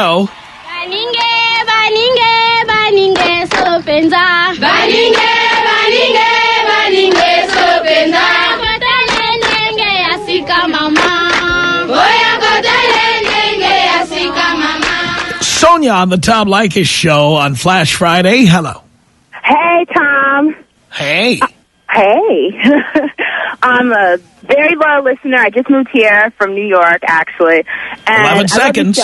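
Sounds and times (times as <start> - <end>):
chant of singing voices: 0.6 - 15.5.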